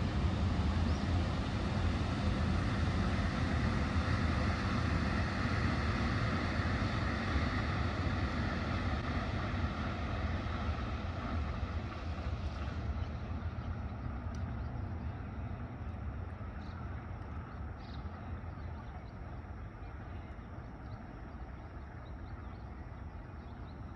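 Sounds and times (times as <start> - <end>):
vehicle rumbling: 0.0 - 23.9
faint ticks: 14.3 - 14.5.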